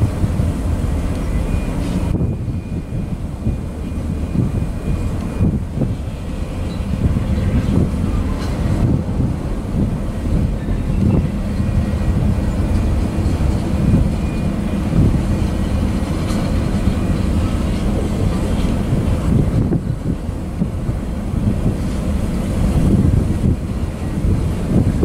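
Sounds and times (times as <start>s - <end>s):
train wheels rumbling on rail: 0.0s - 25.0s.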